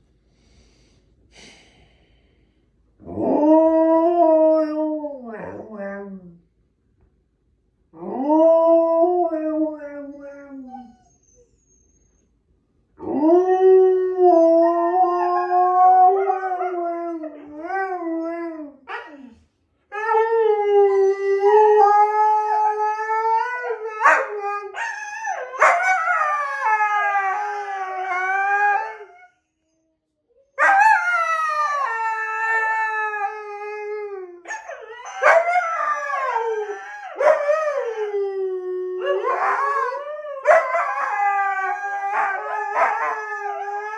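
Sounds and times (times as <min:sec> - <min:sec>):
huskies howling: 0:34.6 - 0:43.9.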